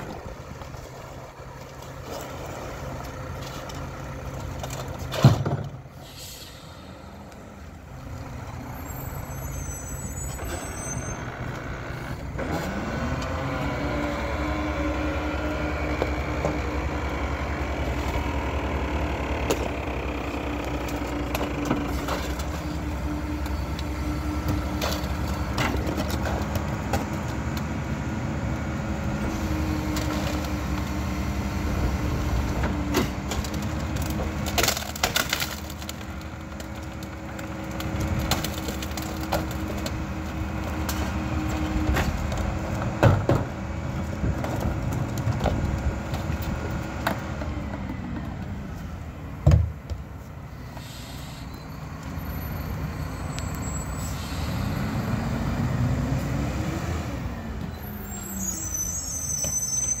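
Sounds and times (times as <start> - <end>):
garbage truck diesel engine: 0.0 - 60.0
bangs and cracking of trash crushing: 32.5 - 47.2.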